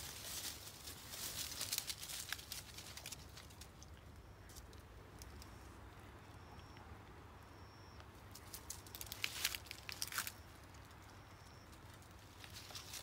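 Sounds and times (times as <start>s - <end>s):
dry leaves crackling underfoot: 0.0s - 5.7s, 8.1s - 13.0s.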